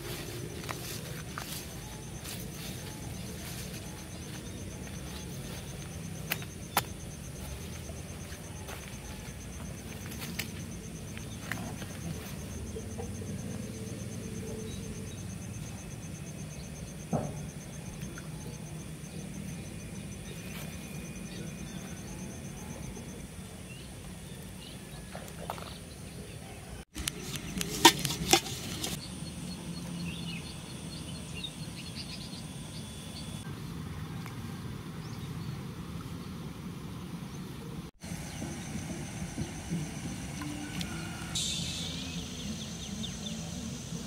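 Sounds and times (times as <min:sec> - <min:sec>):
steady low hum: 0:00.0 - 0:44.0
high chirping: 0:39.5 - 0:43.6.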